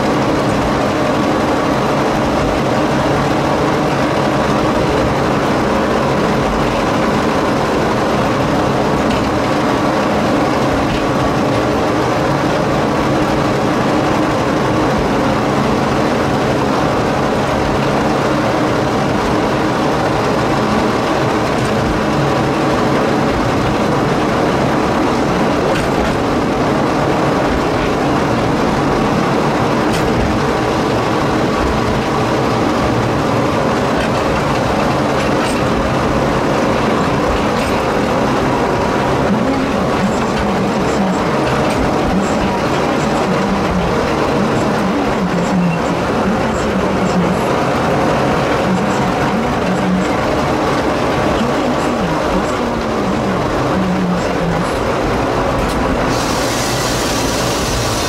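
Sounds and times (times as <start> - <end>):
diesel locomotive engine running: 0.0 - 58.0
train cars rumbling on track: 0.0 - 58.0
light clicks from rails: 25.7 - 26.3.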